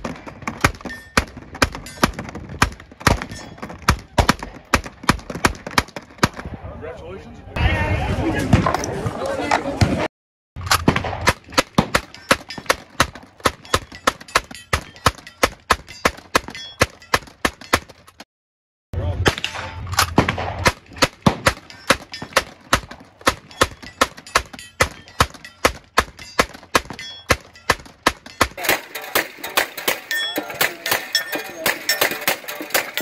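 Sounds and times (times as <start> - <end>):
gatling gun rapid firing: 28.1 - 33.0.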